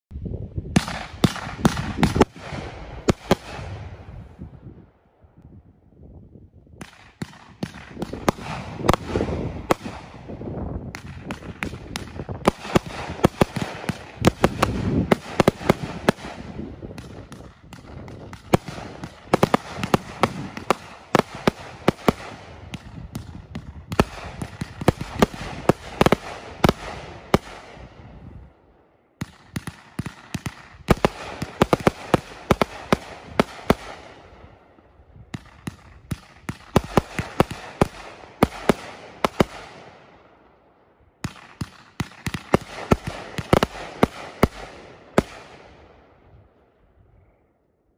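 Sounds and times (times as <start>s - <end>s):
firework crackle: 7.3s - 28.4s
aerial firework bursts: 8.1s - 28.4s.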